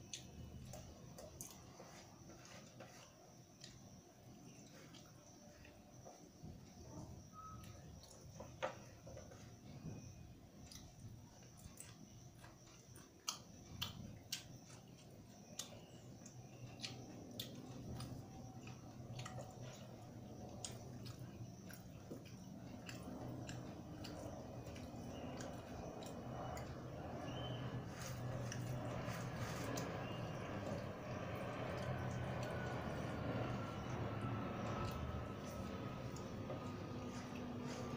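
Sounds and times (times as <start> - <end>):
low steady hum: 0.0 - 37.9
person chewing with smacks: 10.6 - 37.9.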